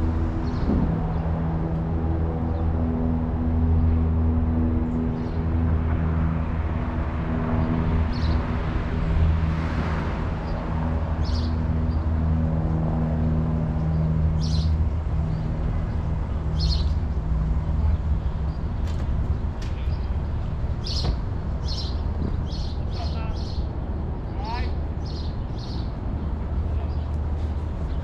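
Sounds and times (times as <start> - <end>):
birds chirping: 7.3 - 8.8, 10.4 - 28.0.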